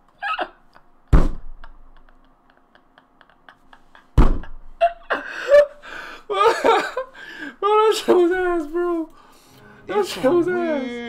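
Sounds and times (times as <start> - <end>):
heavy thumps: 1.1 - 1.7, 4.1 - 4.7
man's stifled laughter: 1.6 - 7.2.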